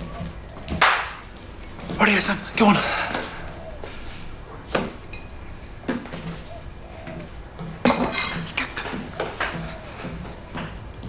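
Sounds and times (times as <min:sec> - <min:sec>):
crockery and cutlery clinking: 0:07.8 - 0:10.2.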